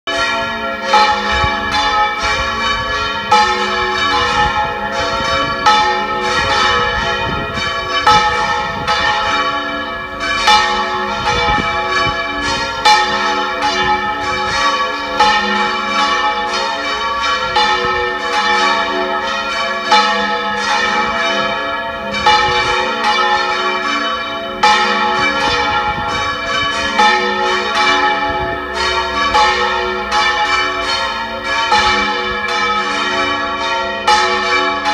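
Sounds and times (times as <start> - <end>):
church bells pealing: 0.1 - 34.9
wind rumbling on microphone: 1.0 - 15.4, 22.1 - 22.9, 24.6 - 27.2, 27.8 - 29.6.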